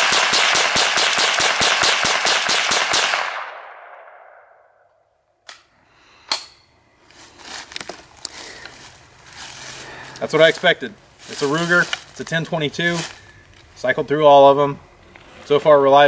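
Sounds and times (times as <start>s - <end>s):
rifle firing rapidly: 0.0s - 4.2s
gun handling noise: 5.4s - 8.9s.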